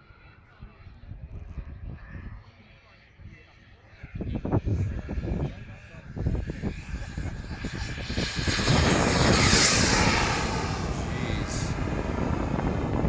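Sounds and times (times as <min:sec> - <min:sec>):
model jet turbine passing: 0:04.8 - 0:13.0.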